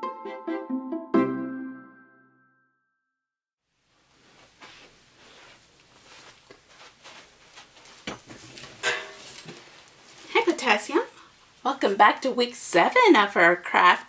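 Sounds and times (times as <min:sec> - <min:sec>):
faint rustling: 0:03.8 - 0:10.4.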